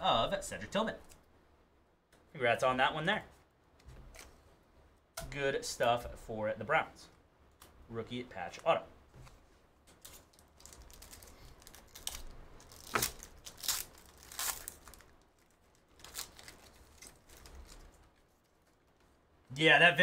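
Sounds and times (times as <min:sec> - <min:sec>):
foil pack tearing and crinkling: 0:10.0 - 0:18.0.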